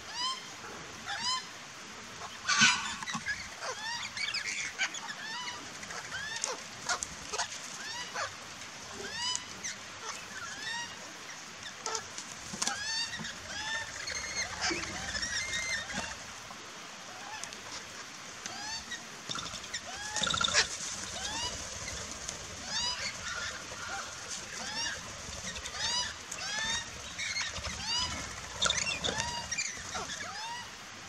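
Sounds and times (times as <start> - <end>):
parrots chirping and squawking: 2.2 - 8.4, 9.0 - 11.0, 11.8 - 12.0, 12.6 - 16.3, 18.5 - 30.7.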